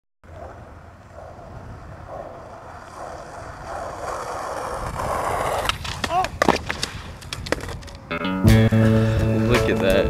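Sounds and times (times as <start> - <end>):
skateboard wheels rolling on asphalt: 0.2 - 8.1
wind rumble on microphone: 0.3 - 8.0.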